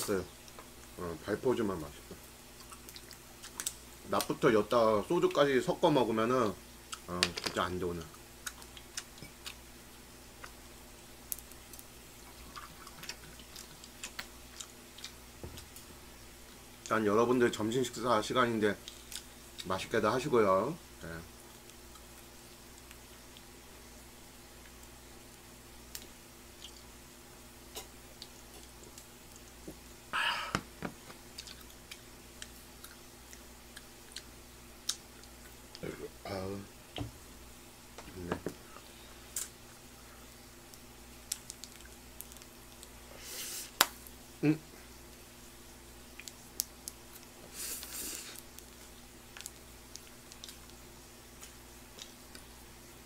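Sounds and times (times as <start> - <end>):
low electrical hum: 0.0 - 53.0
breathy exhale: 30.2 - 30.6.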